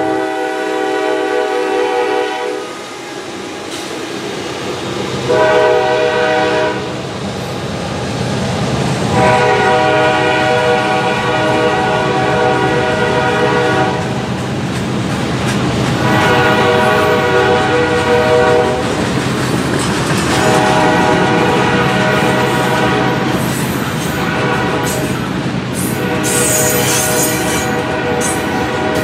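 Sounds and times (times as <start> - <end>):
locomotive air horn blasts: 0.0 - 2.9, 5.3 - 7.0, 9.1 - 14.1, 16.0 - 18.8, 20.3 - 23.5, 24.2 - 25.1, 25.8 - 29.0
train cars rumbling on rails: 0.0 - 29.0.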